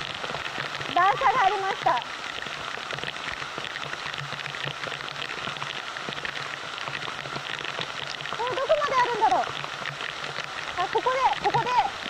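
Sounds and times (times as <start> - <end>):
heavy rain pouring onto water: 0.0 - 12.0.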